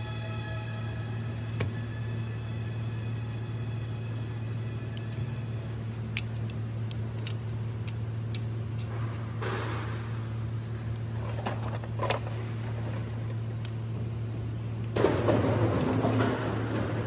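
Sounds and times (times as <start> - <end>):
low hum: 0.0 - 17.0
metal parts clicking and knocking: 6.1 - 8.9, 10.9 - 13.8.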